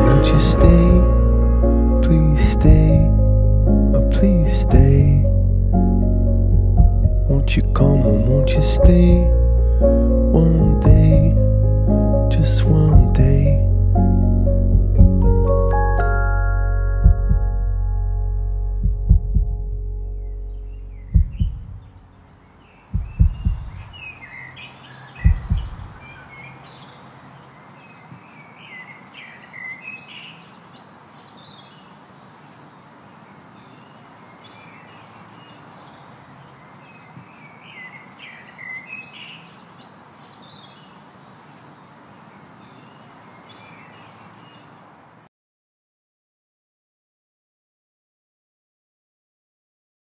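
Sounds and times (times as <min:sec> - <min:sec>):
deep thuds: 0:00.0 - 0:01.3, 0:02.4 - 0:03.2, 0:04.7 - 0:05.2, 0:06.5 - 0:07.3, 0:08.8 - 0:09.4, 0:10.6 - 0:11.4, 0:12.9 - 0:13.5, 0:14.7 - 0:15.5, 0:17.0 - 0:17.6, 0:18.8 - 0:19.8, 0:20.9 - 0:22.0, 0:22.9 - 0:24.0, 0:25.2 - 0:26.0
steady outdoor hiss: 0:00.0 - 0:06.4, 0:20.5 - 0:45.3
birds chirping: 0:20.0 - 0:45.3.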